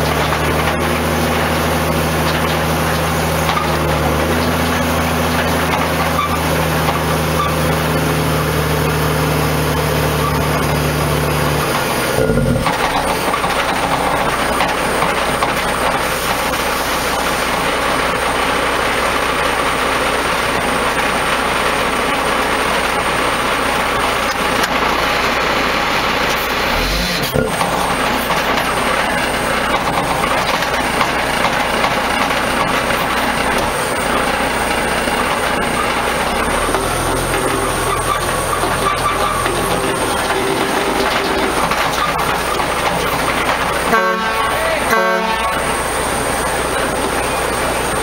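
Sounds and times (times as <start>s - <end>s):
diesel engine running under load: 0.0s - 48.0s.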